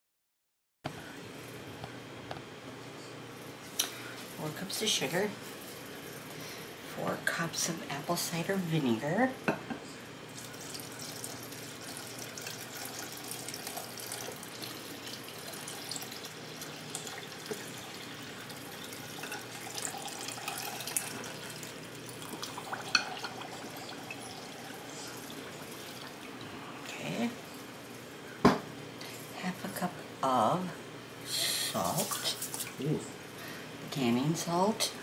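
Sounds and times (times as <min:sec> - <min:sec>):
liquid pouring into glass bowl: 0:10.4 - 0:26.6.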